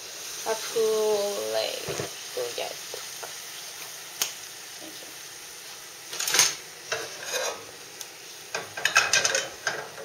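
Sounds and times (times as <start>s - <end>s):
sandwich sizzling in frying pan: 0.0s - 10.0s
scraping in pan: 6.2s - 7.8s.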